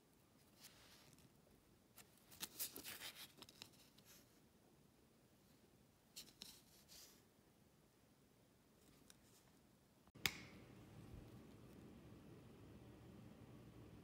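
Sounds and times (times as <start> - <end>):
paper rustling: 2.0 - 4.3.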